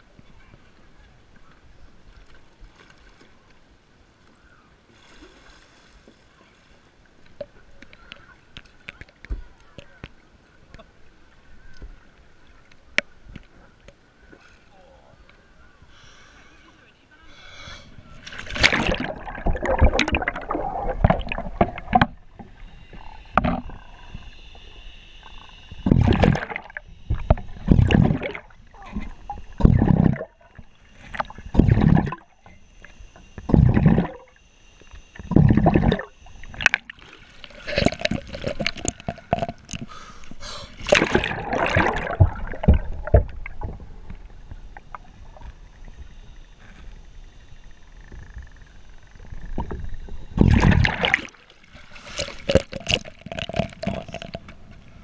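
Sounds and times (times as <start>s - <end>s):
muffled underwater sloshing and bubbling: 17.8s - 55.0s
churning water surges: 17.9s - 22.2s, 40.8s - 44.0s, 50.4s - 54.3s.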